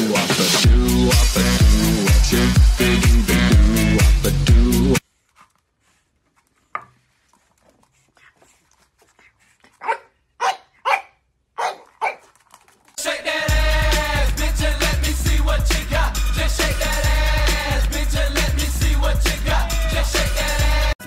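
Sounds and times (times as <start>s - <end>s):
puppy yapping: 9.2s - 12.4s.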